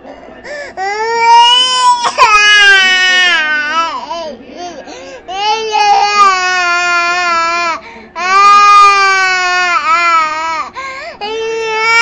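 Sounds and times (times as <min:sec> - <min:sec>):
toddler crying: 0:00.8 - 0:04.3, 0:05.3 - 0:12.0.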